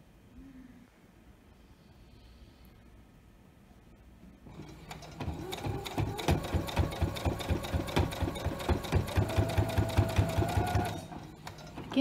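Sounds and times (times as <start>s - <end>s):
electric sewing machine stitching: 4.5s - 12.0s.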